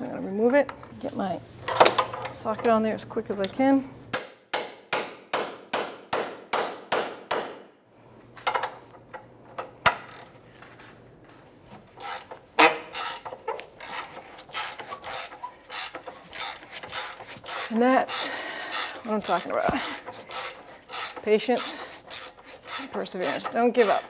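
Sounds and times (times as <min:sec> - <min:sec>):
rough scraping of rusted stud: 0:11.8 - 0:24.0.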